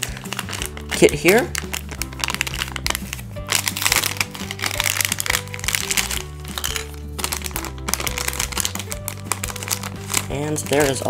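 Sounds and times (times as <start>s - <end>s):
background music: 0.0s - 11.0s
plastic bag crinkling: 0.0s - 11.0s.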